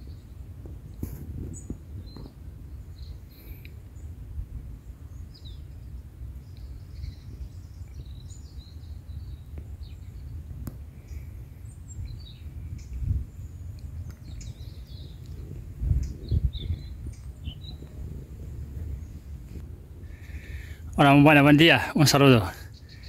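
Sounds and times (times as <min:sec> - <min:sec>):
small birds chirping: 0:00.0 - 0:23.0
wind rumble on microphone: 0:00.0 - 0:23.0.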